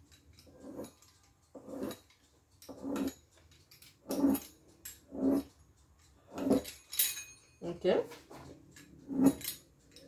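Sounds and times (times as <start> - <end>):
pizza cutter rolling through dough: 0.0 - 2.1, 2.7 - 3.2, 4.0 - 5.5.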